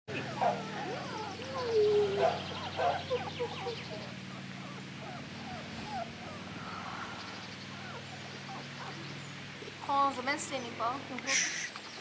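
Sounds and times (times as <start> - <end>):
steady low hum: 0.1 - 11.1
puppies whining and squeaking: 0.2 - 6.6, 7.7 - 9.1.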